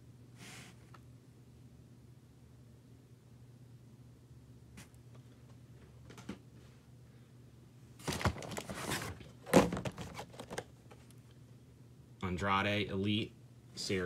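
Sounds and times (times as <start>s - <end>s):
package thunking against box: 8.0s - 10.6s
packaging rustling and scraping: 8.0s - 11.0s.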